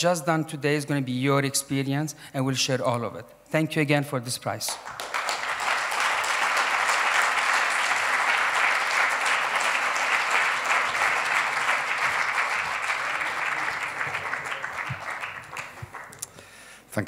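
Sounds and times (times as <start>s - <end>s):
audience applauding: 4.7s - 16.4s.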